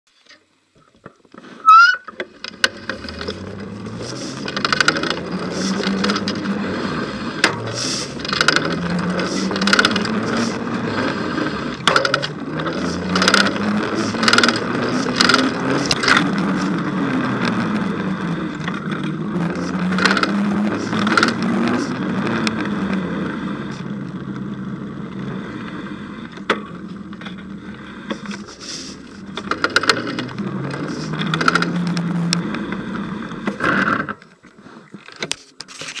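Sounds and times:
bicycle rolling noise: 0.2s - 36.0s
bicycle knocks and rattles: 2.1s - 6.5s, 7.4s - 10.6s, 11.8s - 17.0s.

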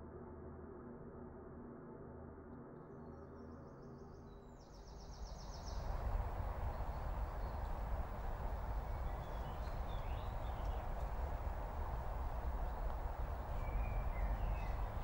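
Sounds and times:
faint bird chirps: 4.8s - 15.0s
low rumble: 5.4s - 15.0s
rustling hiss: 5.4s - 15.0s.

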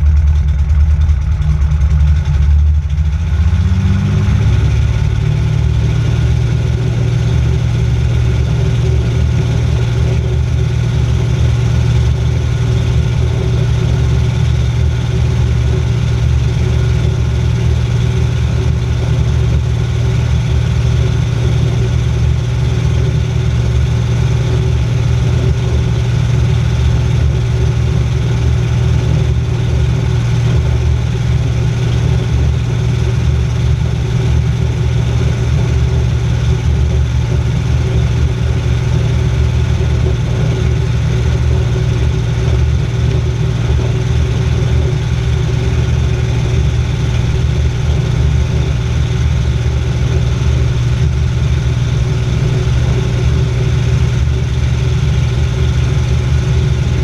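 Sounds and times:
plane engine drone from cabin: 0.0s - 57.0s.

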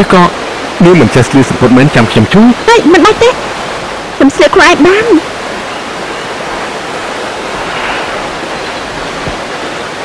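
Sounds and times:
rushing noise: 3.3s - 10.0s.

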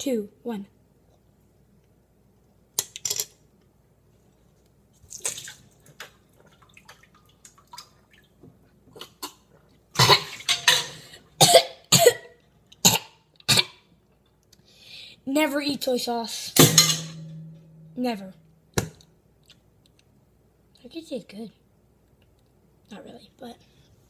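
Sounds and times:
boy coughing and sputtering: 9.0s - 10.4s, 11.4s - 13.8s.

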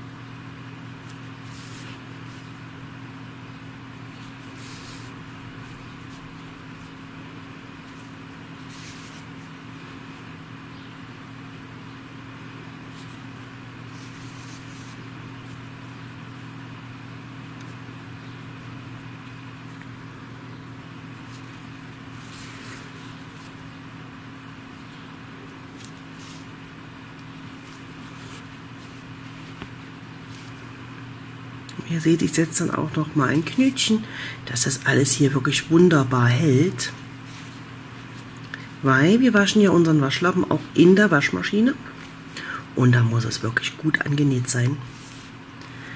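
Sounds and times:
yarn rustling through cloth: 12.8s - 16.0s, 21.0s - 30.8s, 36.9s - 39.2s, 44.8s - 45.4s.

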